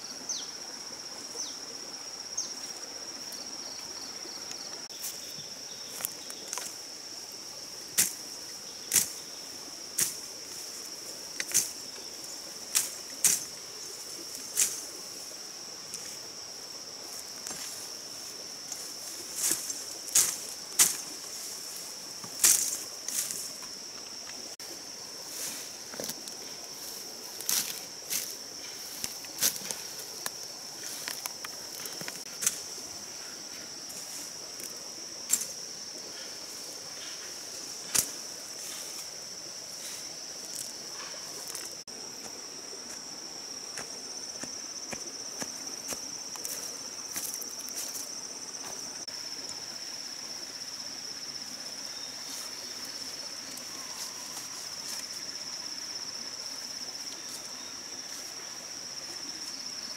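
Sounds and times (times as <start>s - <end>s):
insect chorus: 0.0s - 59.9s
fern stems snapping and rustling: 8.9s - 9.2s, 11.4s - 11.8s, 12.7s - 13.5s, 18.7s - 21.0s, 22.4s - 23.4s, 27.4s - 32.7s, 35.3s - 35.6s, 37.9s - 38.2s.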